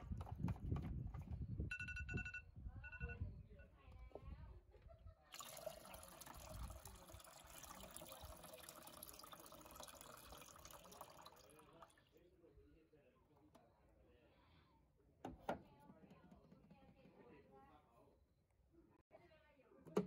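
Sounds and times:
phone timer beeping: 1.7 - 3.2
water pouring into a pot: 5.3 - 12.0.

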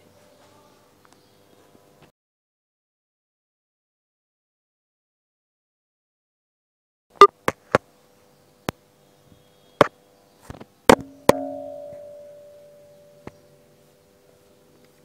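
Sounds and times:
metal ringing: 10.9 - 13.6.

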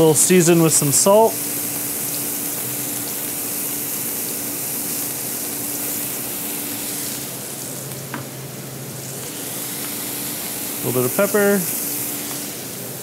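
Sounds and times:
vegetables sizzling in a pan: 0.0 - 13.0.

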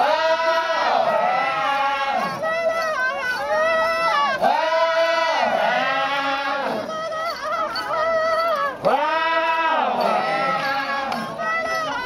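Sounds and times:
men chanting in unison: 0.0 - 2.3, 4.4 - 6.9, 8.8 - 11.3.

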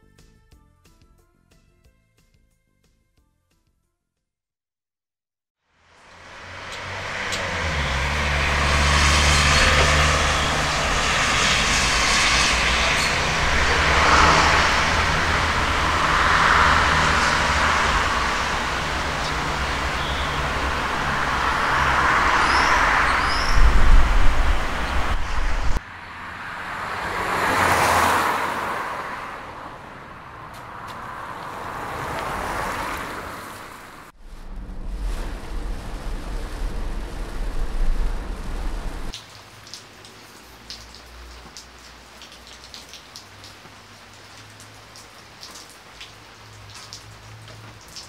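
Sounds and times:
cars passing: 5.8 - 39.2
light rain falling: 5.9 - 25.8, 30.7 - 48.0
deep rumble: 34.1 - 39.1.

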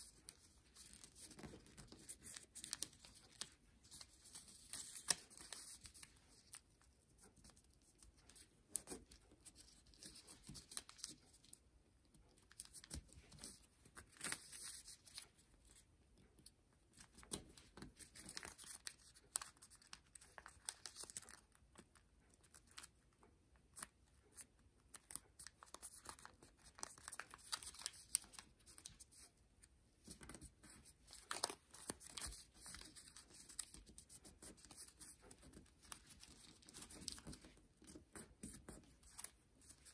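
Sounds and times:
paper rustling and crinkling: 0.0 - 6.7, 17.0 - 21.6, 23.8 - 29.3, 30.0 - 39.9.

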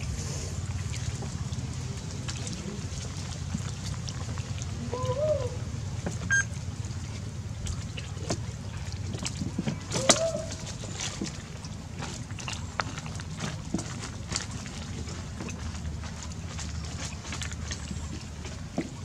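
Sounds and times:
low rumble: 0.0 - 19.0.

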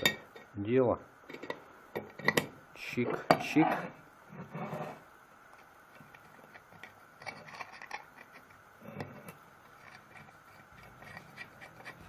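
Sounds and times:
light metal scraping: 3.4 - 5.0, 6.3 - 12.0.

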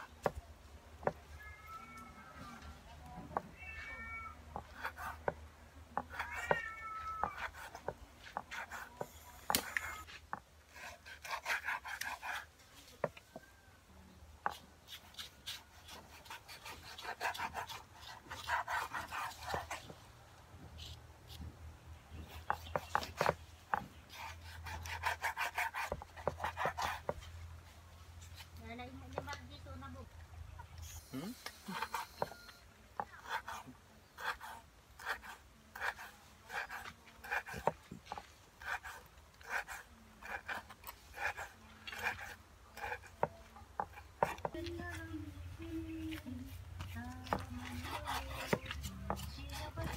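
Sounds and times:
knife sawing on cutting board: 10.7 - 12.5, 24.1 - 27.2
knife scraping on cutting board: 46.8 - 49.9.

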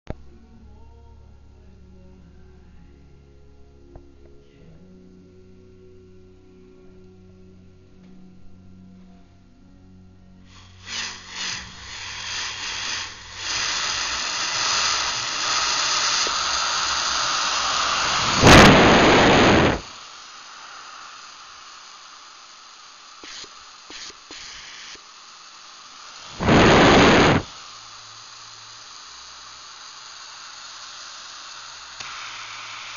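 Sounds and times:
compressed air hissing: 10.4 - 32.9
air venting rushes: 10.5 - 24.9, 25.5 - 32.9
valve clicks: 10.5 - 32.9.

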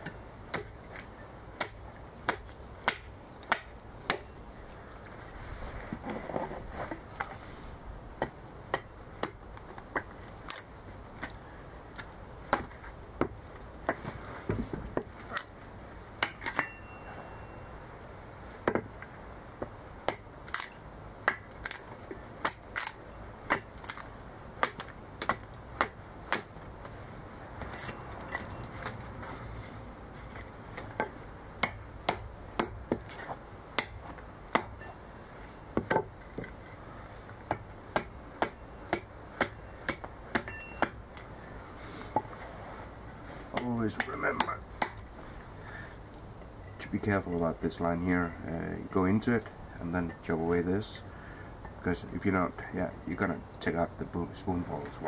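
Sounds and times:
hatchet chopping wood: 0.0 - 4.4, 8.2 - 11.4, 12.0 - 14.0, 16.2 - 16.8, 18.6 - 18.9, 19.6 - 24.0, 24.6 - 26.6, 30.8 - 35.0, 37.4 - 41.3, 43.6 - 45.1.

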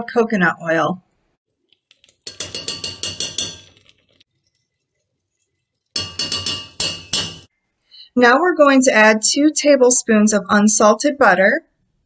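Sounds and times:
metal spoon clinking against pot: 1.9 - 5.0, 5.6 - 7.5.

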